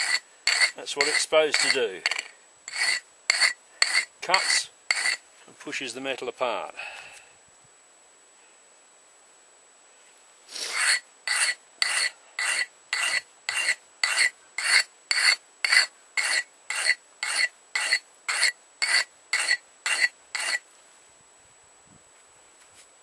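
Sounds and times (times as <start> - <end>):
chisel scraping on sharpening stone: 0.0 - 5.2, 10.6 - 20.6.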